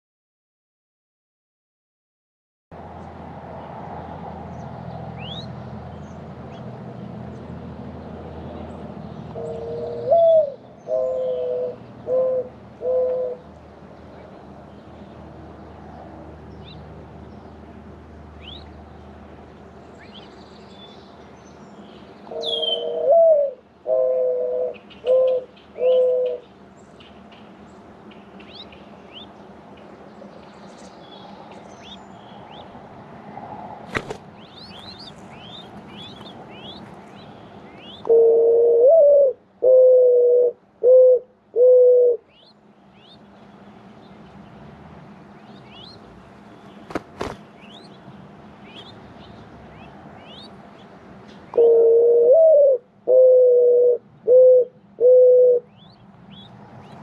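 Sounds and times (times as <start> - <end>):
small birds chirping: 4.5 - 7.6, 12.9 - 32.8, 33.9 - 38.2, 42.2 - 51.8, 55.6 - 57.0
dove cooing: 9.4 - 13.5, 22.2 - 26.5, 37.8 - 42.4, 51.5 - 55.8.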